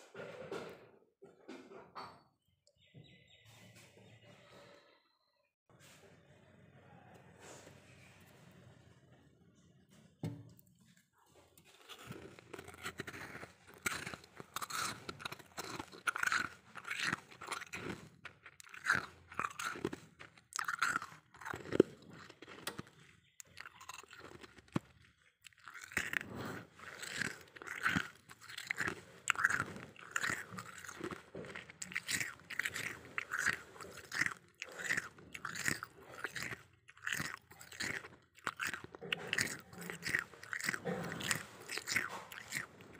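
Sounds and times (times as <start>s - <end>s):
freezer frost crunching: 11.6s - 42.9s.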